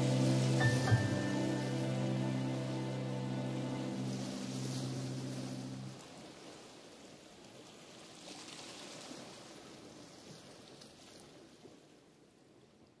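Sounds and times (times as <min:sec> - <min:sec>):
faint rain: 0:00.0 - 0:08.0.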